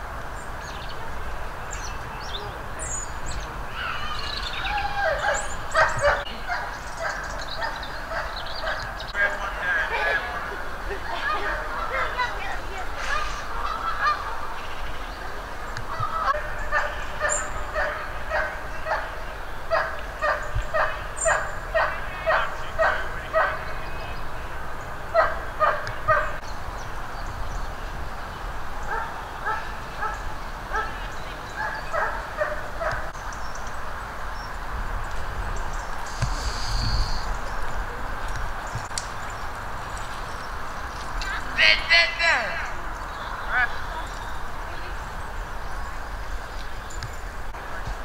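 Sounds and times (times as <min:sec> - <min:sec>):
geese honking: 0:00.9 - 0:26.4, 0:28.3 - 0:33.2, 0:40.8 - 0:45.0.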